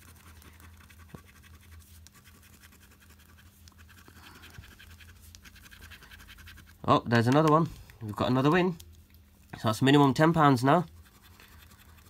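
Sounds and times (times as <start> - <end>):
coin scratching paper: 0.0 - 6.8, 10.2 - 12.0
low steady hum: 0.0 - 12.0.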